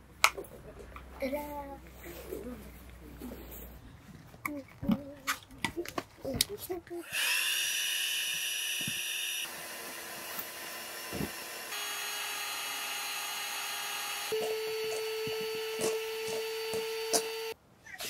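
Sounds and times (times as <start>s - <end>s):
small electric motor running: 7.0s - 17.6s.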